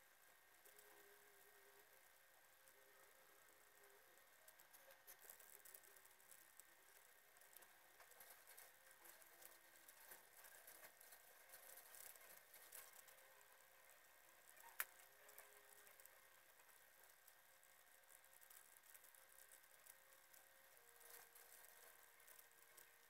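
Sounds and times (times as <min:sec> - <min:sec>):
faint steady hiss: 0:00.0 - 0:23.0
small ticks: 0:00.0 - 0:23.0.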